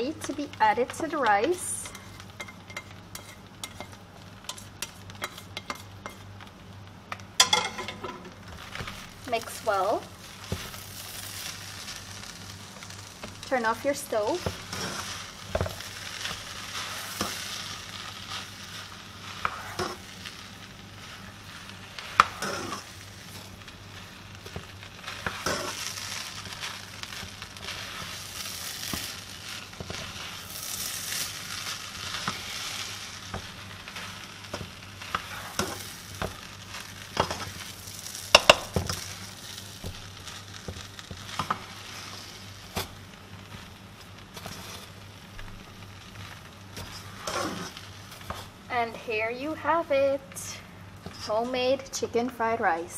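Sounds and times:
rice sizzling: 0.0 - 52.9
spatula scraping a pan: 1.5 - 6.3, 14.2 - 20.4, 21.0 - 43.7, 44.3 - 45.0, 46.2 - 48.6
spatula clacking against pan: 1.9 - 6.2.

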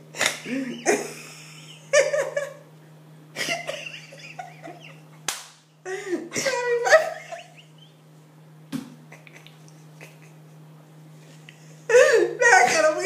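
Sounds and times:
woman laughing: 0.4 - 2.7, 3.4 - 5.2, 5.9 - 7.9, 9.0 - 10.6, 11.9 - 13.0
sharp smack: 5.3 - 5.6.

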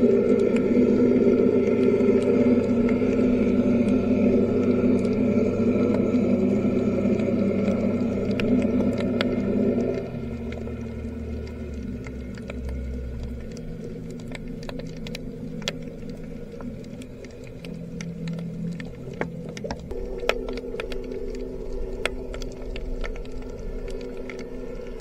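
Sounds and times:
low underwater hum: 0.0 - 25.0
sharp clicks and crackles: 0.0 - 25.0.

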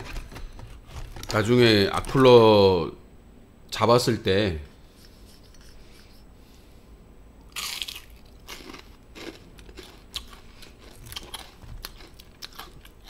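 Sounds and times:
crunchy food being chewed: 7.5 - 13.0.

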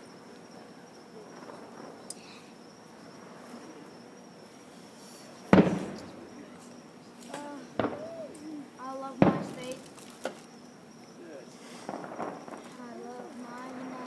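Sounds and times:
crickets trilling: 0.0 - 14.0
small firework pop: 5.5 - 6.1, 7.2 - 8.5, 11.8 - 12.8
firework boom: 5.5 - 6.5, 7.7 - 8.4, 9.1 - 10.0, 11.8 - 12.8.

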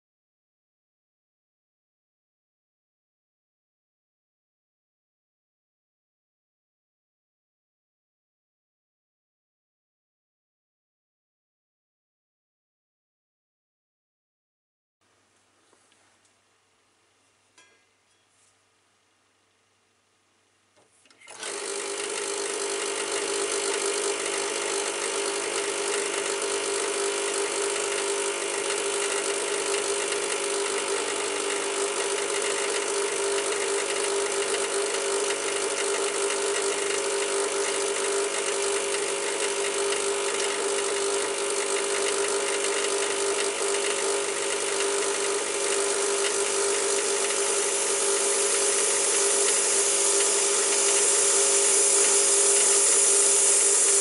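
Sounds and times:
espresso machine pump buzzing: 21.1 - 54.0.

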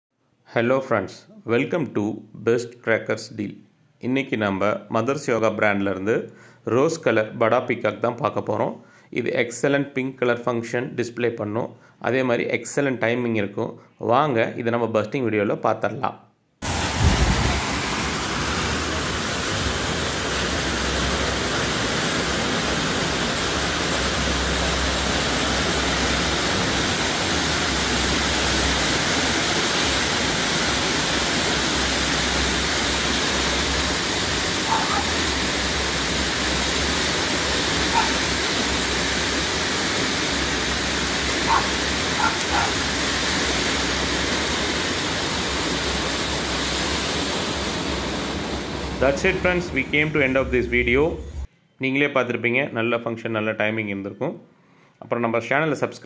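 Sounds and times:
firework fountain hissing: 16.6 - 51.5.

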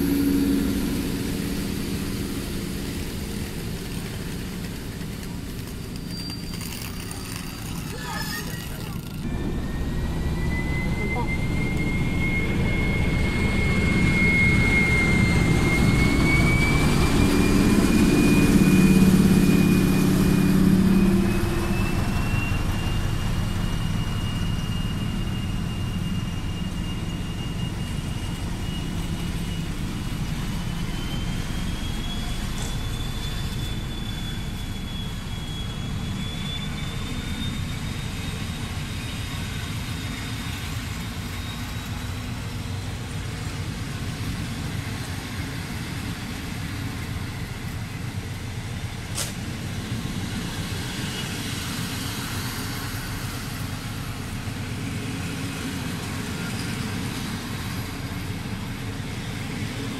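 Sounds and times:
thin high whine rising in pitch: 0.0 - 42.7
diesel locomotive engine: 0.0 - 59.9.

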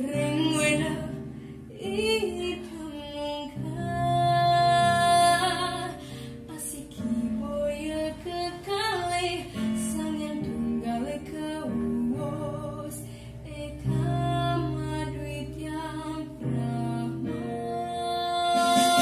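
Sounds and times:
girl singing: 0.0 - 19.0
instrumental accompaniment: 13.5 - 19.0.

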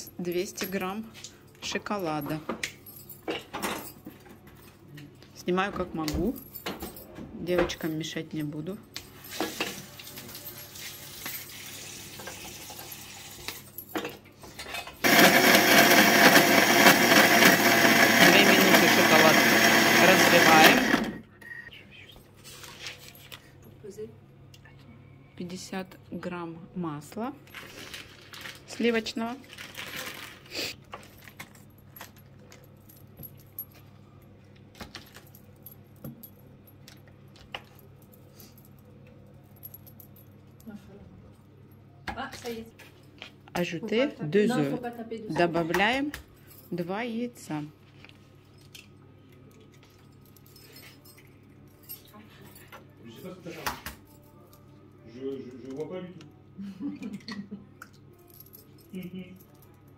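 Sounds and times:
food processor motor whirring: 15.0 - 21.2
foil wrapper crinkling: 27.6 - 28.8, 29.4 - 31.4.

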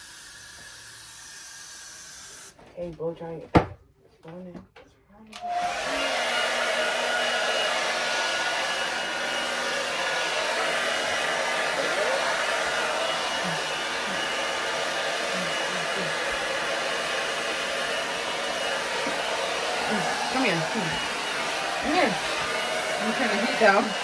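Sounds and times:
hair dryer blowing: 5.4 - 24.0.

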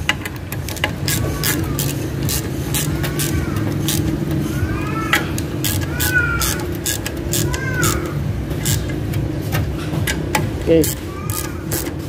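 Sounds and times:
vehicle engine running: 0.0 - 12.0.

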